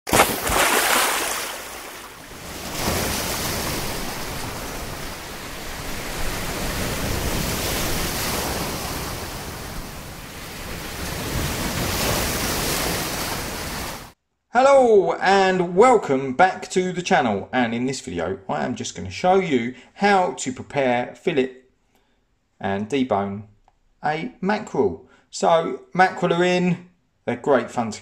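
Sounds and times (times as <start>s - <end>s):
sea waves breaking: 0.1s - 14.2s.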